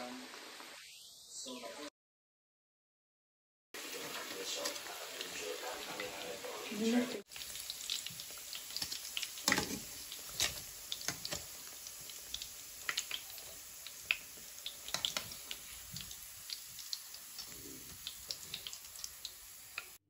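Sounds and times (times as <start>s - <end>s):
oil sizzling in a frying pan: 3.8s - 20.0s.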